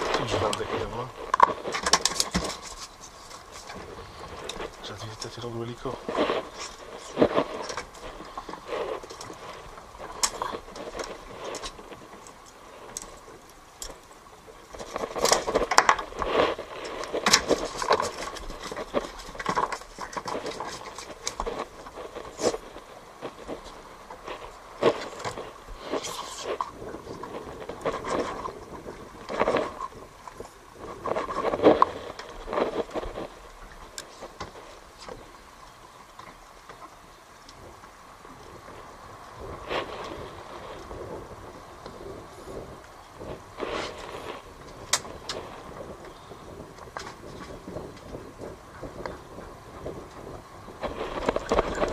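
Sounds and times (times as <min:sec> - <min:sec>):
fishing gear knocking and rattling: 0:00.0 - 0:22.7, 0:26.2 - 0:35.3.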